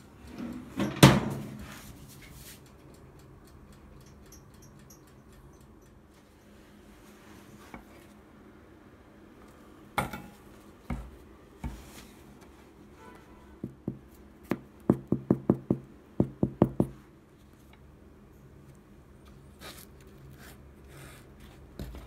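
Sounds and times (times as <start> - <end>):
hand tapping bread crust: 13.6 - 17.0.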